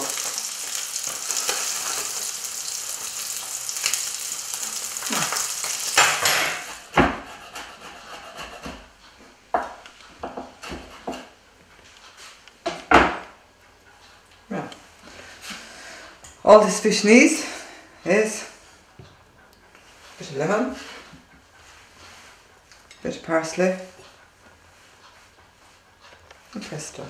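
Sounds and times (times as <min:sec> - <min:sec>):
fish sizzling in a frying pan: 0:00.0 - 0:06.8.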